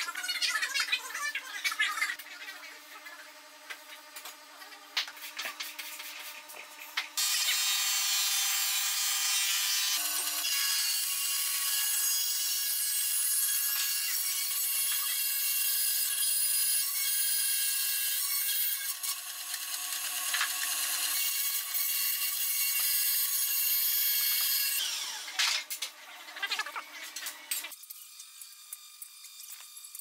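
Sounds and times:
bandsaw cutting wood: 7.2s - 27.7s.

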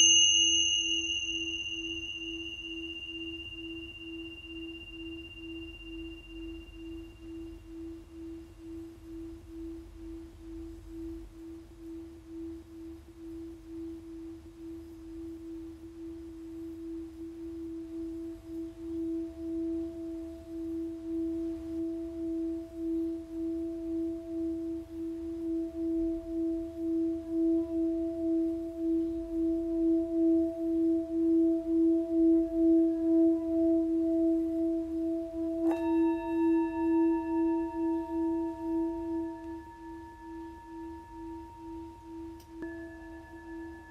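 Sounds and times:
high ringing tone: 0.0s - 9.7s, 35.6s - 43.9s.

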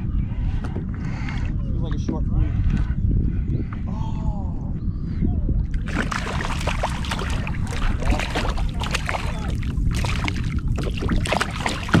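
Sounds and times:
steady low rumble: 2.2s - 12.0s
fish splashing at water surface: 5.8s - 12.0s.

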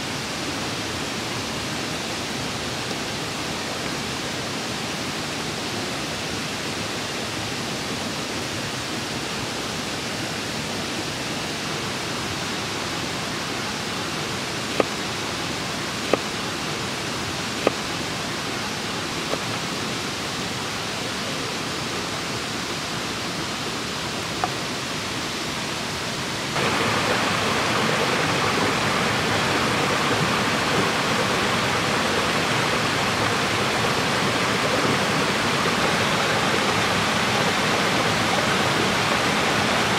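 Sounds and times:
stream water running: 0.0s - 39.9s
knife chopping on wooden board: 16.1s - 16.3s.

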